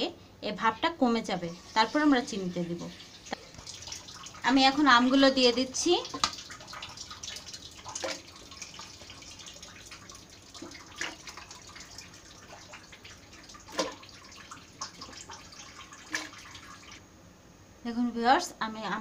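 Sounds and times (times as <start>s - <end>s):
fruit pieces splashing into water: 12.6s - 14.2s.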